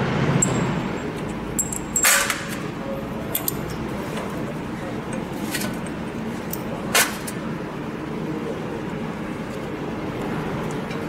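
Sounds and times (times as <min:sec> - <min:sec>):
low background hum: 0:00.0 - 0:11.0
light metal clicks: 0:03.3 - 0:04.3.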